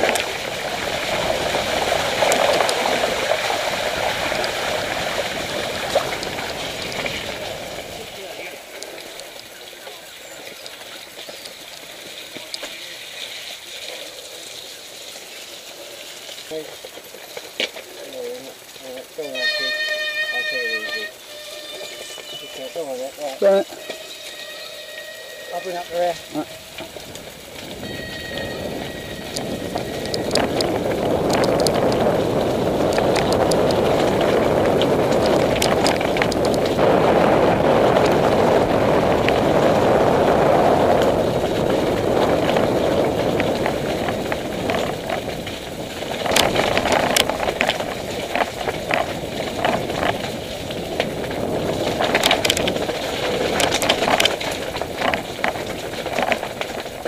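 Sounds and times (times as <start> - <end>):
bike rattling and clattering: 0.0 - 57.0
bike tyres rumbling on stones: 0.0 - 57.0.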